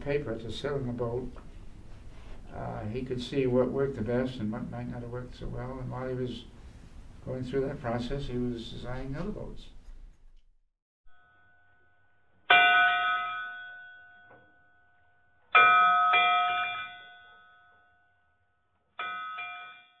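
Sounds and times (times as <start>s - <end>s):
bell ringing: 12.5s - 14.9s, 15.6s - 18.1s, 19.0s - 20.0s.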